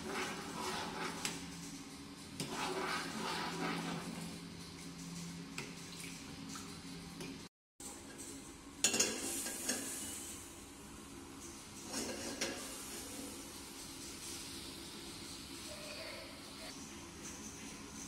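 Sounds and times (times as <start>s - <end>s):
metal spoon scraping a saucepan: 0.0s - 1.4s, 2.4s - 4.2s.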